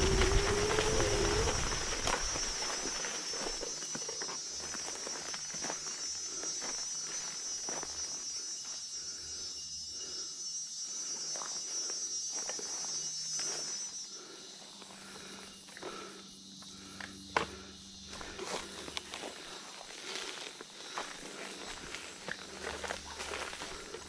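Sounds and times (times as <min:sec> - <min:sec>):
rustling leaves: 0:00.0 - 0:05.4
footsteps on forest floor: 0:00.0 - 0:08.8, 0:14.7 - 0:24.0
high-pitched insect chorus: 0:00.0 - 0:24.0.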